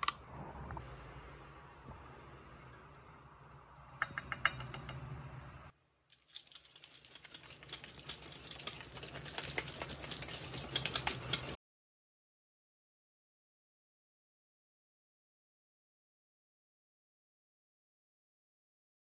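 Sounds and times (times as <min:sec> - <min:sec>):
shaker bottle rattling: 0:06.1 - 0:11.6.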